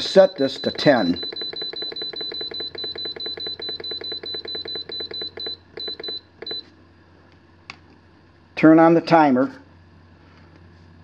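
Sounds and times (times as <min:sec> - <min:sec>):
short high beeps: 0:00.0 - 0:06.7.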